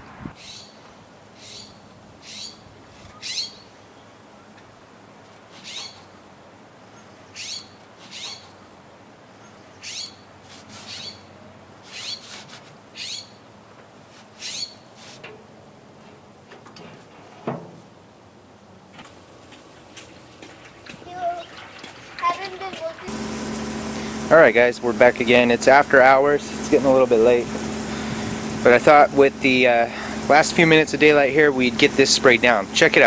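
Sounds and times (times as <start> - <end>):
small bird chirping: 3.2 - 3.7.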